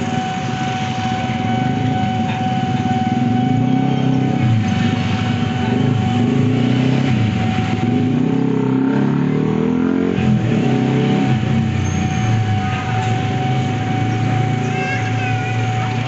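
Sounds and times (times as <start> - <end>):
high-pitched electronic warning alarm: 0.0 - 16.0
scooter engines passing: 0.0 - 16.0.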